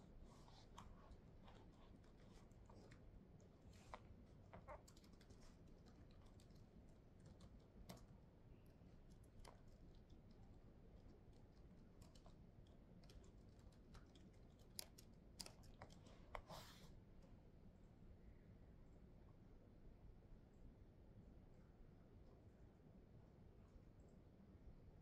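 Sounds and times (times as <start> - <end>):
laptop keyboard keystrokes: 4.6 - 8.1, 11.1 - 16.5.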